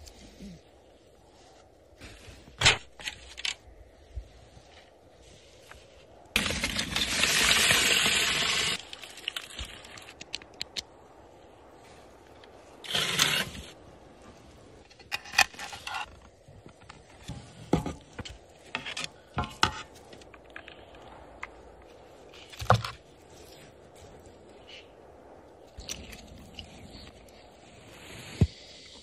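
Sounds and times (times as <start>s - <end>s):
foil trays scraping on metal grate: 6.4s - 8.8s, 12.9s - 13.7s.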